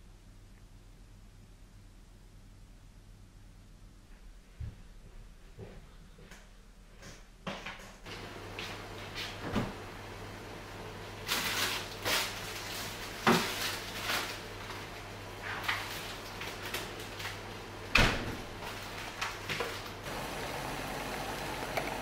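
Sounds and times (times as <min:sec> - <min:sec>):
fridge door shutting thud: 0:17.9 - 0:18.5
water boiling in a pan: 0:18.5 - 0:22.0.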